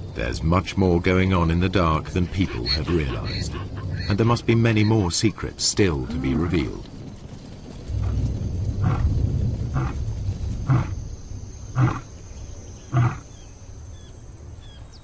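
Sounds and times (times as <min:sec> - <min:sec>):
lion roaring: 0:07.9 - 0:11.0, 0:11.7 - 0:12.1, 0:12.9 - 0:13.3.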